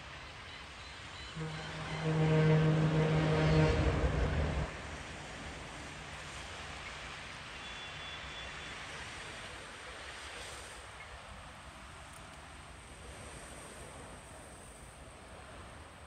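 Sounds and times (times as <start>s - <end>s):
diesel train rumbling past: 0.1s - 10.7s
train horn: 1.2s - 5.6s.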